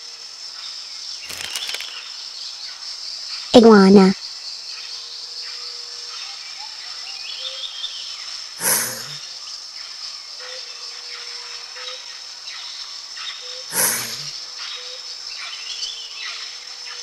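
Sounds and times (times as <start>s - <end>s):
insects droning: 0.0s - 17.0s
loud hissing burst: 13.7s - 14.3s.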